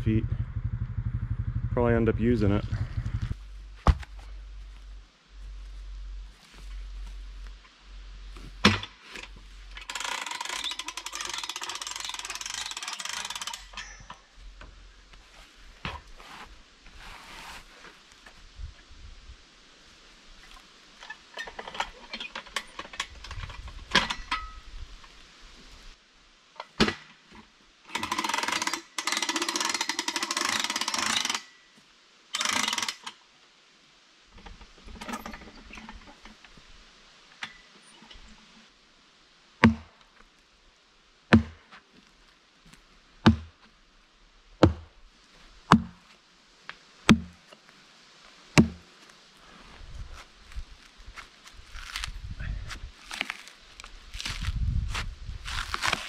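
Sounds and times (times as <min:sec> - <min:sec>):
rough scraping noise: 0:15.3 - 0:18.0
hatchet chopping log: 0:39.6 - 0:39.9, 0:41.3 - 0:41.6, 0:43.2 - 0:43.5, 0:44.6 - 0:44.9, 0:45.7 - 0:46.0, 0:47.1 - 0:47.4, 0:48.6 - 0:48.8.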